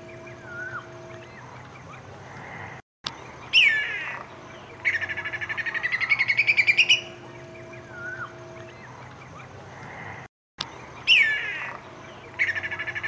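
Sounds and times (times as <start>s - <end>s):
kite calling: 0.0s - 2.8s, 3.4s - 10.3s.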